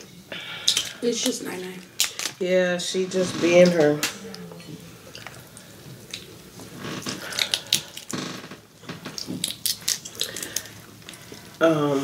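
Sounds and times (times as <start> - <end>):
shells cracking and peeling: 0.6 - 2.4, 5.2 - 11.6
chewing: 4.0 - 8.2, 8.9 - 11.6.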